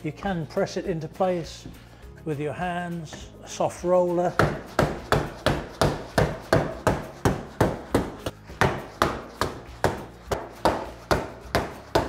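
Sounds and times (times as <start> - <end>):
dull thuds of hammer on roof: 4.4 - 12.0.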